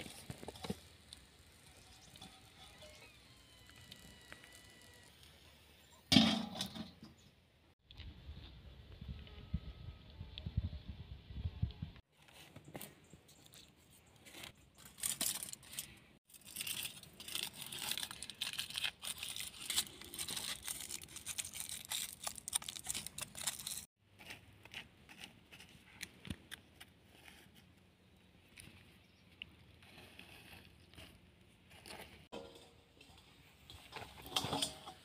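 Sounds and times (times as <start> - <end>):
paper and plants crinkling: 12.1 - 27.8.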